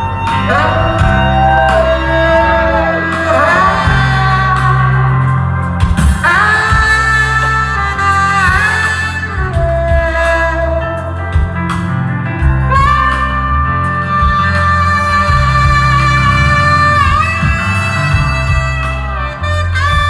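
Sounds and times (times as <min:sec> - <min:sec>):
live band playing amplified music: 0:00.0 - 0:20.0
steady bass line: 0:00.0 - 0:20.0.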